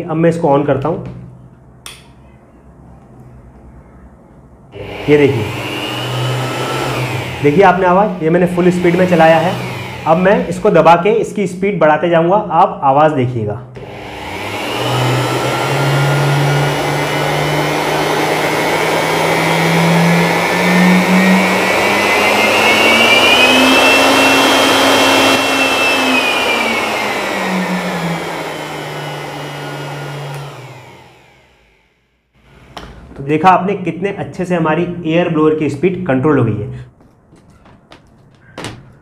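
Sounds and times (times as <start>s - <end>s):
electric blower motor whine: 4.7s - 11.2s, 13.8s - 33.1s.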